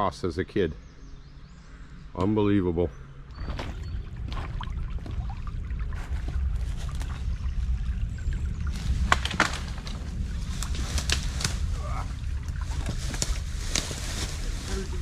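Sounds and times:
low steady rumble: 0.0s - 15.0s
footsteps rustling through brush: 5.9s - 7.6s, 8.7s - 15.0s
twigs snapping: 8.7s - 14.5s.

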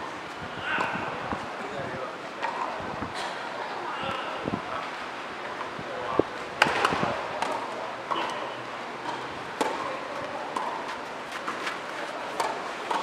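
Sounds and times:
tennis ball hitting racket: 6.6s - 13.0s.

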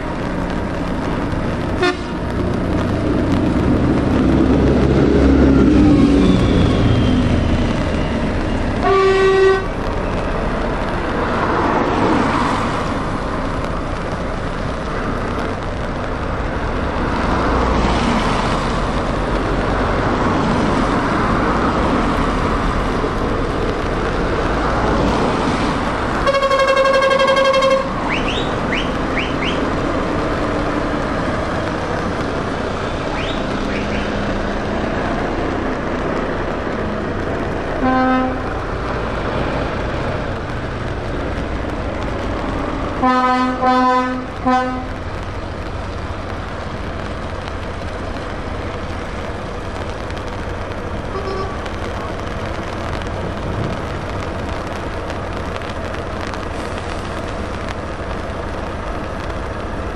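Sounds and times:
lorries and cars passing: 0.0s - 59.9s
tyre hiss on wet road: 0.0s - 59.9s
lorry air horn: 26.2s - 27.9s.

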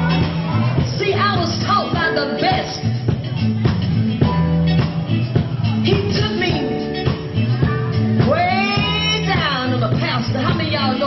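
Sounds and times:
bass line: 0.0s - 11.0s
blues-rock band playing: 0.0s - 11.0s
steady drum beat: 0.0s - 11.0s.

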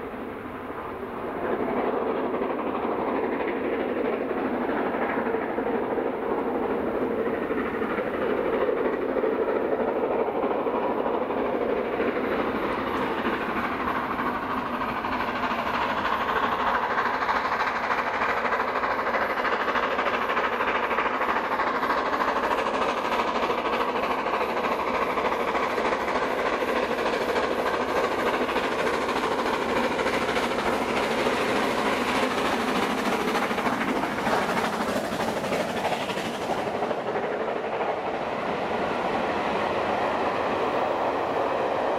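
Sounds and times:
steam locomotive exhaust: 0.0s - 41.9s
train wheels clicking over rail joints: 0.0s - 41.9s.

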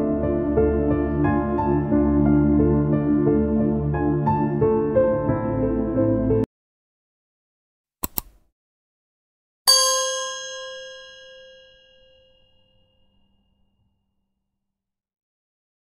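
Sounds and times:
background music: 0.0s - 6.5s
double click: 8.0s - 8.4s
bright bell ding: 9.7s - 13.2s.

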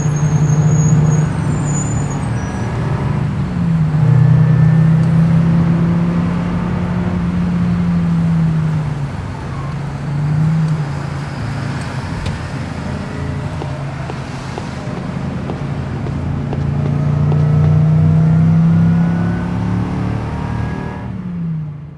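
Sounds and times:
car engine running: 12.2s - 19.0s.

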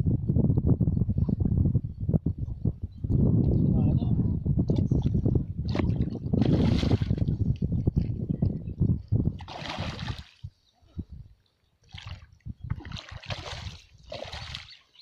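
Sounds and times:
fish splashing in water: 9.4s - 10.4s, 11.9s - 14.8s.

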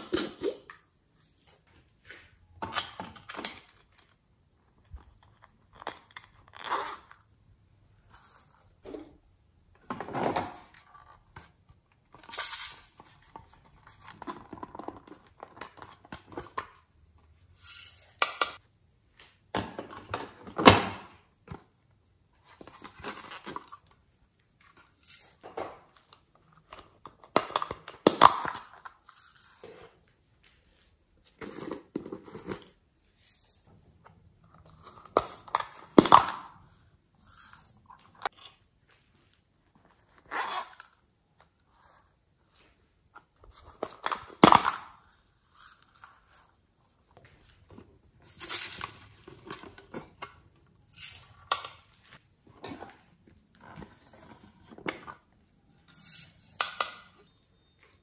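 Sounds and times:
plastic cases rustling and clattering: 47.0s - 57.1s.

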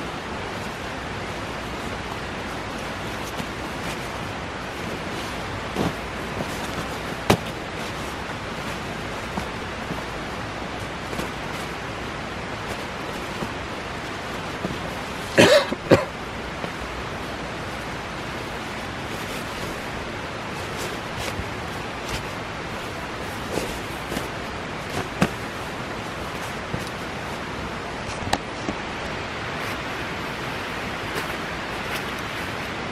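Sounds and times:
sleeping bag rustling: 0.0s - 32.9s
steady outdoor hiss: 0.0s - 32.9s
short cough-like burst: 15.4s - 16.1s.

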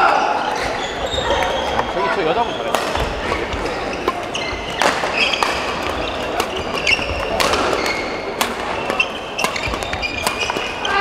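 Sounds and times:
sports hall din: 0.0s - 11.0s
shoes squeaking on court: 0.4s - 11.0s
racket hitting shuttlecock: 2.7s - 10.8s.

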